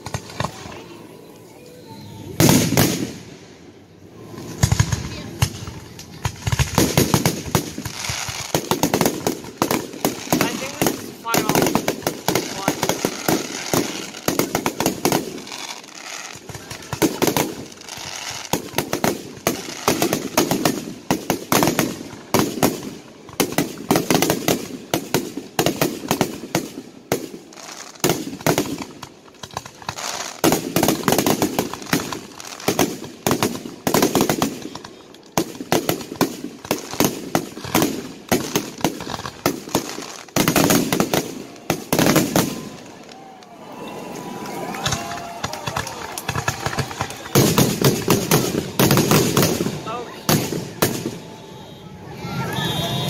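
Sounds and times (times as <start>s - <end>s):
fireworks bursting: 0.0s - 53.0s.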